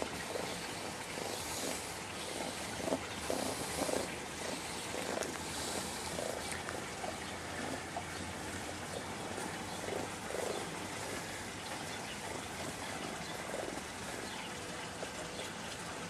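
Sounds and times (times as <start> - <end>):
raccoon churring: 0.0 - 16.0.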